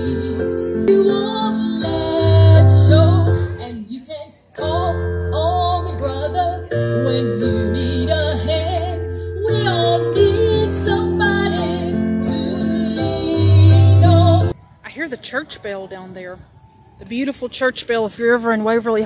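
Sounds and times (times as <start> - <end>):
electronic keyboard chords: 0.0 - 3.7, 4.6 - 14.6
woman singing: 0.0 - 14.6.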